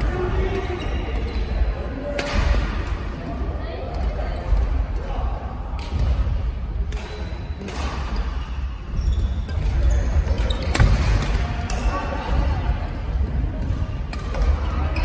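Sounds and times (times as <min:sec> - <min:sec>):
rackets hitting shuttlecock: 0:02.1 - 0:03.3, 0:06.8 - 0:08.2, 0:09.5 - 0:12.4.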